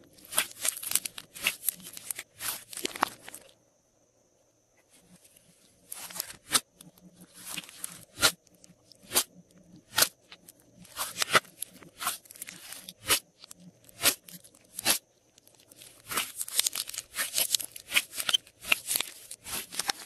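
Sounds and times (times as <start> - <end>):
slime popping and crackling: 0.0 - 3.5, 7.4 - 20.0.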